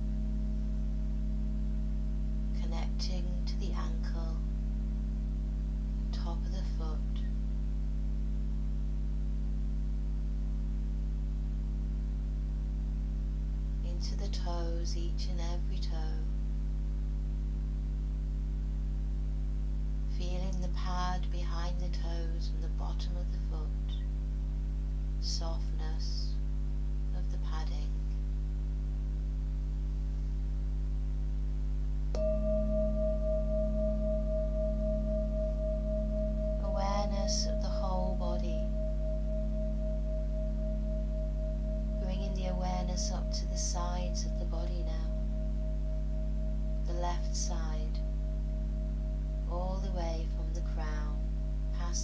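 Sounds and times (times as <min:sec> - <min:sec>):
electrical mains hum: 0:00.0 - 0:52.0
singing bowl ringing: 0:32.1 - 0:52.0.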